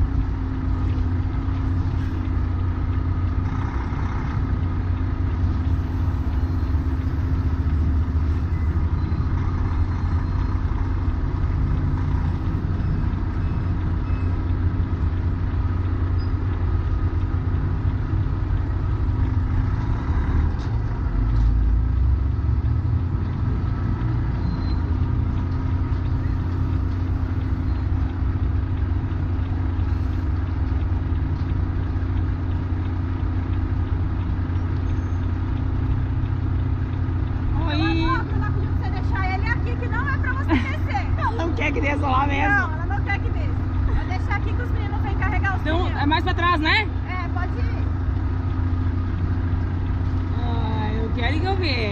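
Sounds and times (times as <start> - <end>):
truck diesel engine rumbling: 0.0 - 51.9.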